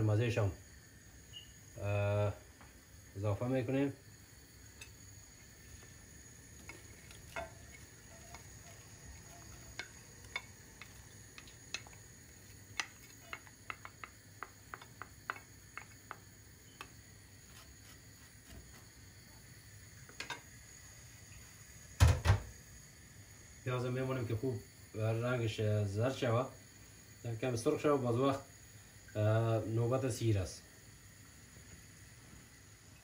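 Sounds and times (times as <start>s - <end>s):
spatula scraping and tapping bowl: 4.8s - 5.0s, 6.6s - 18.8s.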